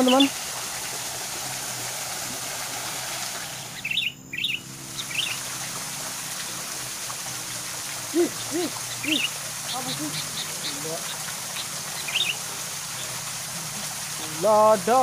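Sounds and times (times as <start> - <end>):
high bird chirps: 0.0 - 0.3, 3.6 - 5.4, 8.2 - 12.4
waterfall splashing into pool: 0.0 - 15.0
low hooting calls: 3.4 - 14.5.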